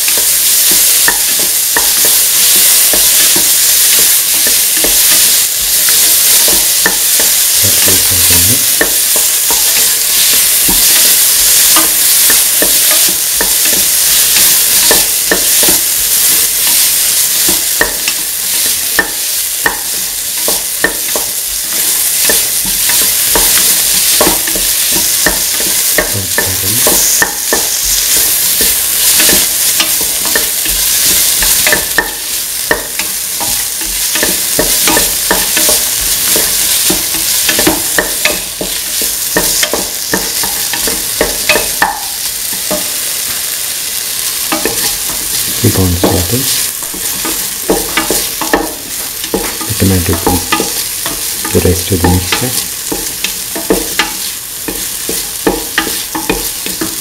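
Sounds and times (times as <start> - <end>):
vegetables sizzling in oil: 0.0 - 57.0.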